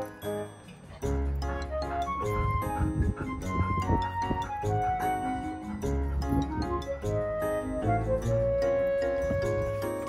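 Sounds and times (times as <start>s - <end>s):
melodic background music: 0.0s - 10.0s.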